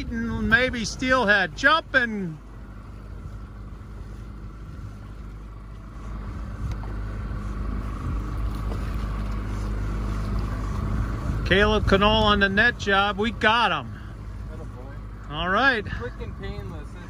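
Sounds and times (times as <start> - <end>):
outboard motor running: 0.0 - 17.0
water noise: 0.0 - 17.0.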